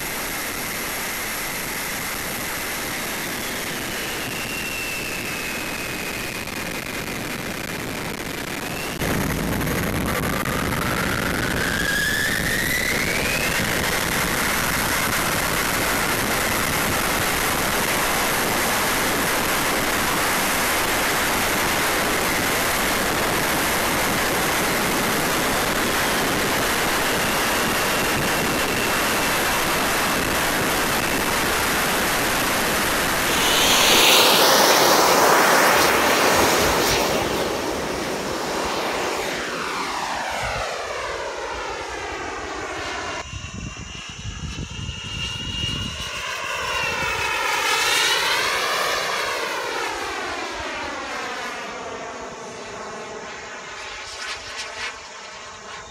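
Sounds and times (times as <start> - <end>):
jet turbine whine and roar: 0.0 - 55.9
rushing air: 22.8 - 41.0.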